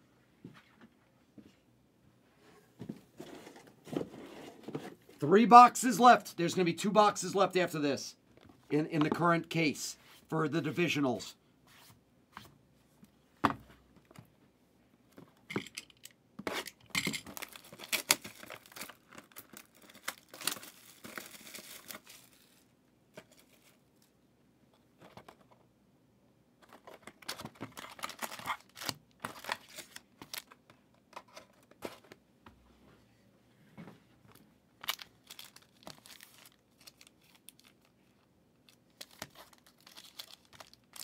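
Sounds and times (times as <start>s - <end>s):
plastic wrapping crinkling: 17.2s - 23.8s, 27.1s - 30.6s, 34.8s - 41.0s.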